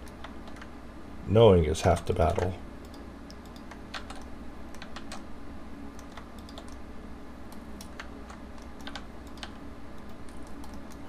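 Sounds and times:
faint low hum: 0.0s - 11.0s
keyboard keys clicking: 2.2s - 5.2s, 6.0s - 6.8s, 7.8s - 11.0s.

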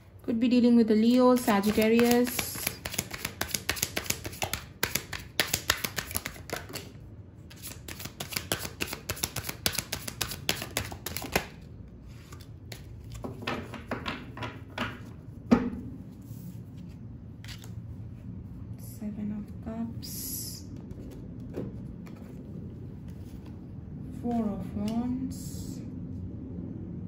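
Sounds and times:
cards being shuffled: 1.3s - 13.8s, 16.8s - 17.8s.

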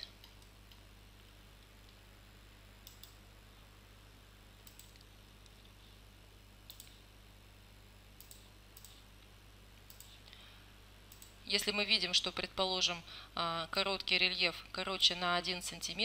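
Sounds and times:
faint low hum: 0.0s - 16.0s
computer mouse clicking: 2.8s - 3.2s, 4.6s - 5.7s, 6.7s - 7.0s, 8.2s - 9.0s, 9.8s - 10.2s, 11.1s - 11.4s.

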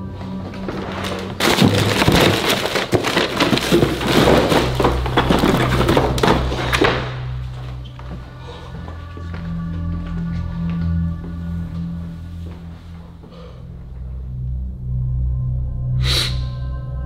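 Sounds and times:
low bass tone of background music: 0.0s - 2.8s, 3.6s - 17.0s
items rustling and clattering: 0.2s - 9.0s
rummaging through kitchen drawer: 1.4s - 6.9s.

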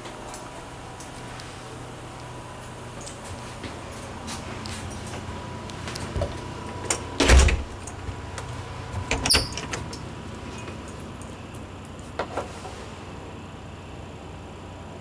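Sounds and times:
door rattle: 6.0s - 10.9s
heavy door thump: 7.2s - 8.3s.

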